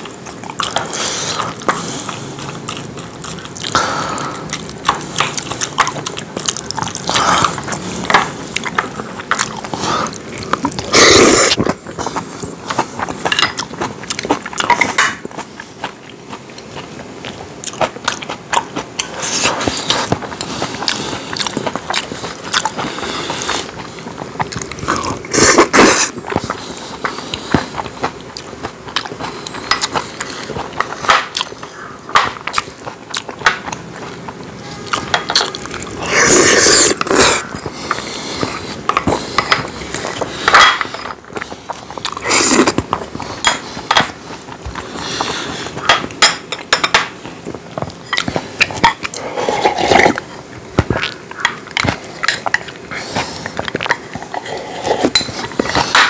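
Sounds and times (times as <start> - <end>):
slurping: 0.0 - 15.0, 19.0 - 31.8, 34.0 - 46.0
chewing: 0.0 - 56.0.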